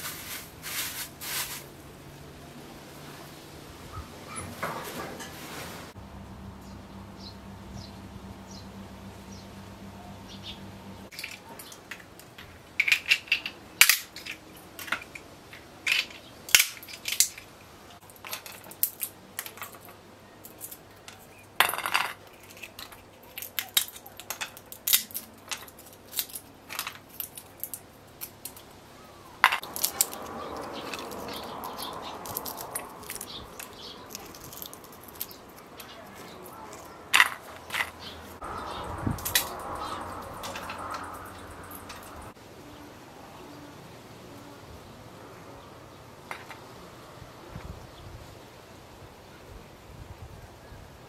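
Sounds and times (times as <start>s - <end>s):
kernels dropping into metal bowl: 11.1s - 17.5s, 18.1s - 28.6s, 29.4s - 38.2s, 39.2s - 42.3s
walnut shells cracking: 11.1s - 28.7s, 29.4s - 38.2s, 39.2s - 42.2s
shells rustling: 11.1s - 28.8s, 29.4s - 42.3s.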